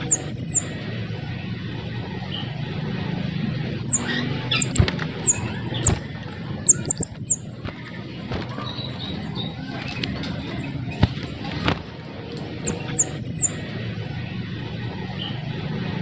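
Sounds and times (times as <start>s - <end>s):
bird calling high downward notes: 0.0s - 0.8s, 3.8s - 7.6s, 12.6s - 13.7s.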